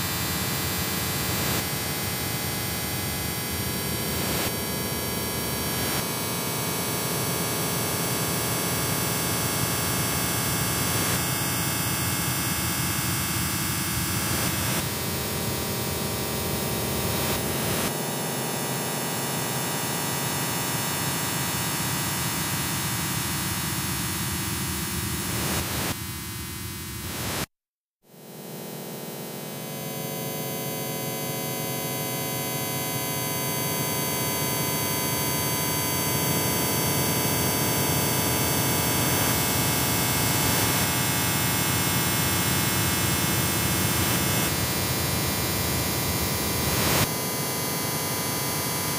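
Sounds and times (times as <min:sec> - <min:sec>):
harsh noise music static: 0:22.5 - 0:27.5.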